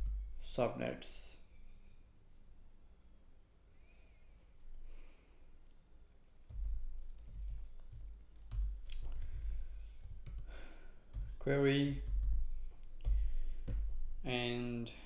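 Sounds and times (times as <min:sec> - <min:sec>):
computer keyboard typing: 0:06.5 - 0:13.2.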